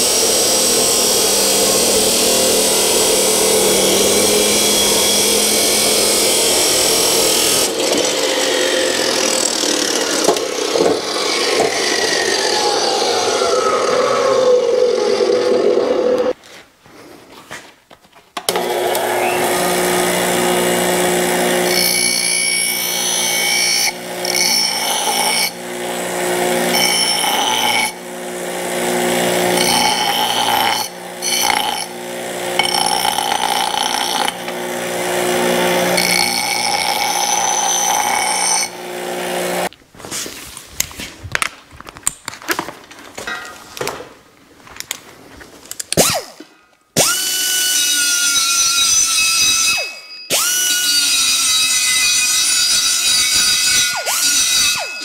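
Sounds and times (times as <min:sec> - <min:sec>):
bench grinder motor hum: 0:00.0 - 0:16.4, 0:18.5 - 0:39.7
metal grinding against wheel: 0:28.7 - 0:39.7.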